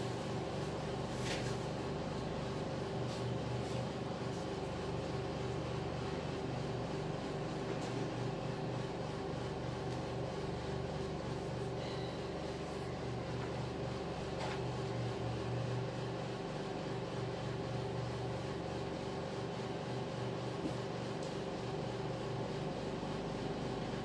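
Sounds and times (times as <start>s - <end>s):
low machine hum: 0.0s - 24.0s.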